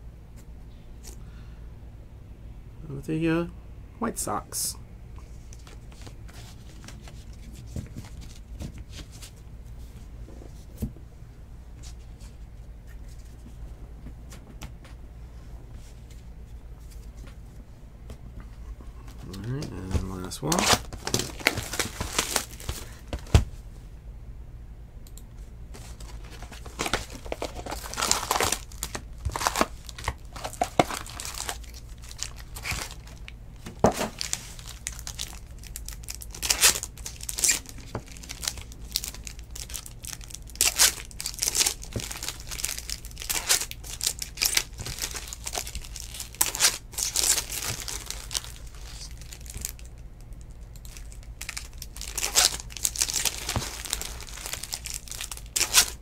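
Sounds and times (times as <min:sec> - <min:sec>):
foil wrappers tearing and crinkling: 0:19.4 - 0:23.3, 0:25.8 - 0:56.0.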